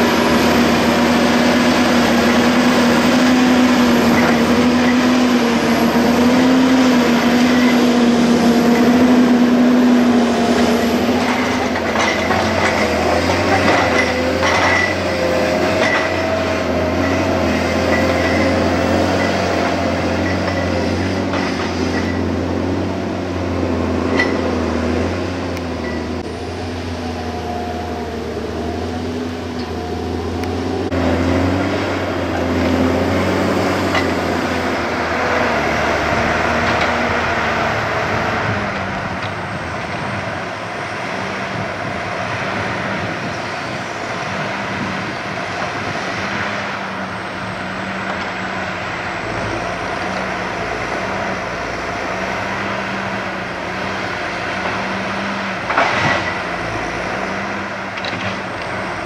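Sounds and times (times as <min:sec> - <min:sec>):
diesel engine running: 0:00.0 - 0:59.0
hydraulic whine: 0:00.0 - 0:59.0.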